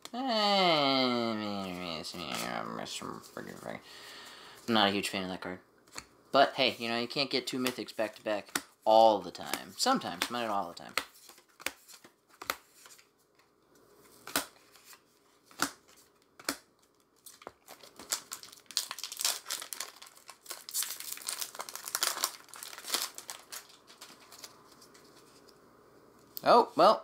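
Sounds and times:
plastic wrapper crinkling: 16.8 - 25.6.

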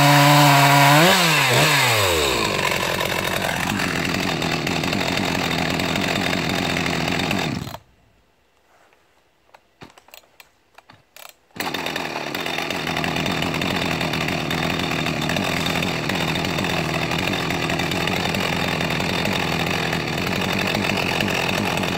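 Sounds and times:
chainsaw idling: 0.0 - 7.8, 11.2 - 21.9.

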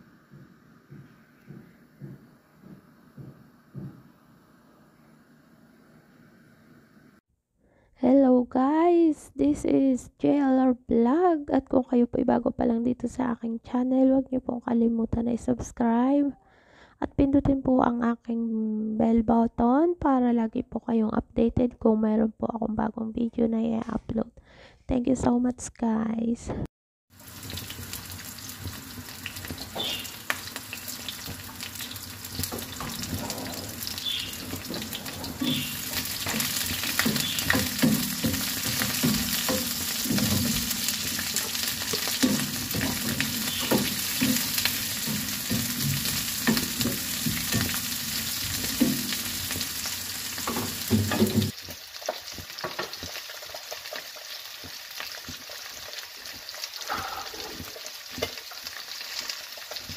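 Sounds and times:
wooden spatula knocking on pan: 0.3 - 4.1, 32.3 - 49.8, 50.4 - 53.2
vegetables sizzling in oil: 27.1 - 59.9.

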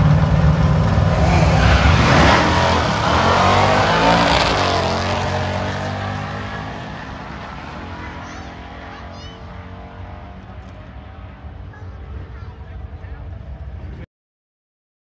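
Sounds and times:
drag cars launching full throttle: 0.0 - 13.9.

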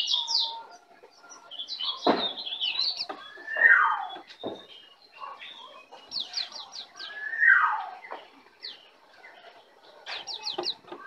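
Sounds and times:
high falling bird chirps: 1.2 - 9.0.

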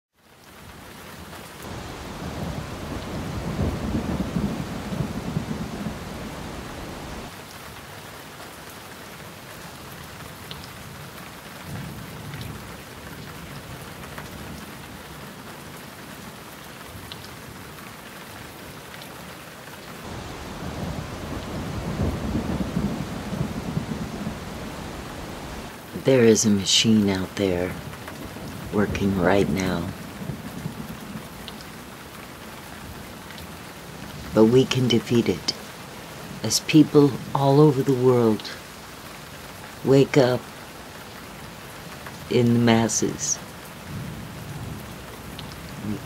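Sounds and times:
steady rain: 0.1 - 46.0
low rolls of thunder: 1.7 - 7.4, 11.6 - 15.3, 20.0 - 25.8, 27.7 - 31.4, 43.8 - 46.0.

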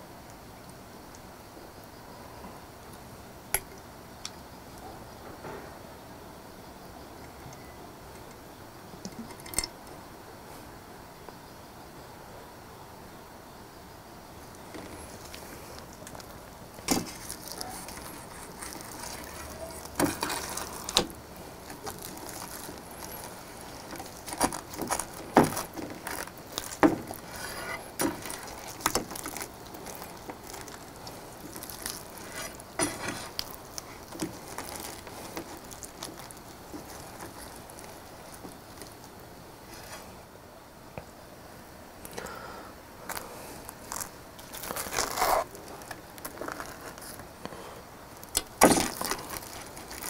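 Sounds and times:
fried breading crackling: 14.5 - 39.2, 48.2 - 50.0
sauce squishing: 14.8 - 39.2, 48.2 - 50.0.

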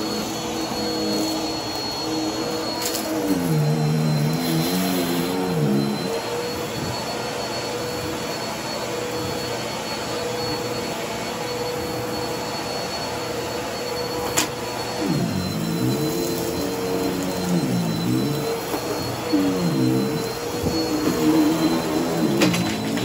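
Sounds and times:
vacuum cleaner motor whine: 0.0 - 23.0.

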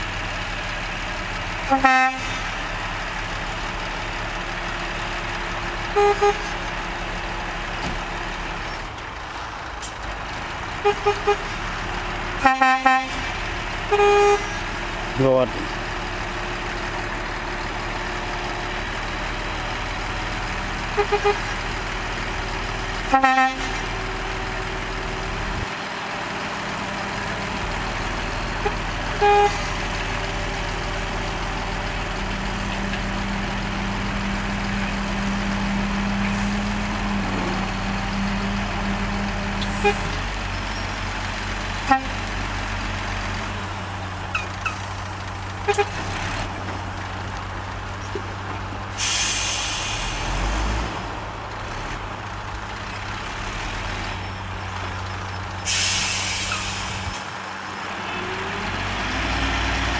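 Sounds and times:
diesel engine running: 0.0 - 59.9
vehicle horn toots: 1.7 - 2.3, 5.9 - 6.5, 10.8 - 11.6, 12.4 - 13.2, 13.9 - 14.6, 20.9 - 21.5, 23.1 - 23.8, 28.6 - 29.7, 41.8 - 42.2, 45.6 - 46.0.

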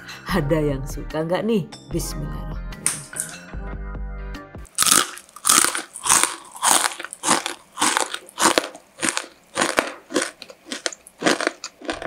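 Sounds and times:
crunchy snack being chewed: 4.7 - 12.0.

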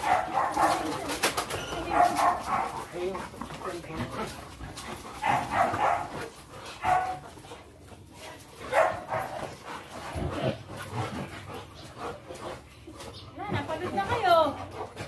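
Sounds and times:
dogs barking: 0.0 - 3.1, 5.1 - 7.4, 8.6 - 15.0.

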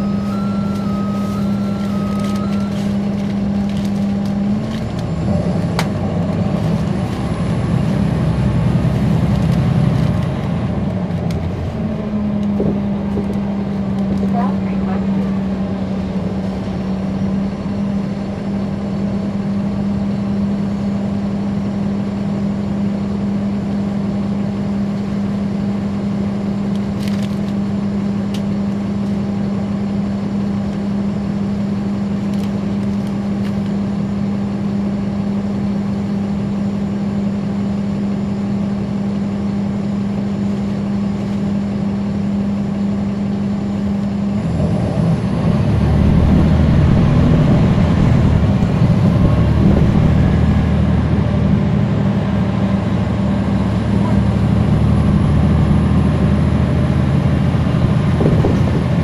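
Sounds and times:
bus diesel engine droning: 0.0 - 59.0.

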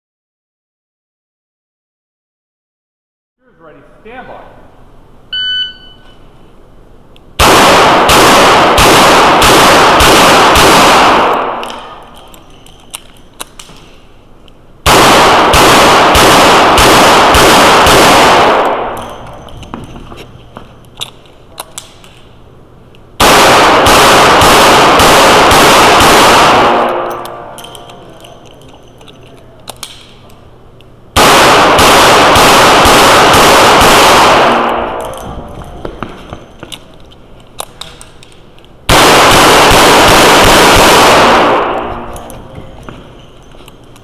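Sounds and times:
revolver shots echoing indoors: 4.3 - 44.0
gun handling clicks: 11.3 - 14.6, 20.8 - 22.3, 26.8 - 31.0, 34.7 - 38.8.

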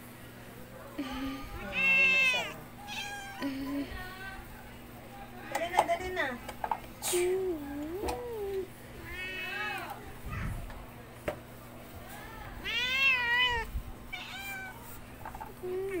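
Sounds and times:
kittens meowing: 1.0 - 3.6, 12.6 - 14.8.

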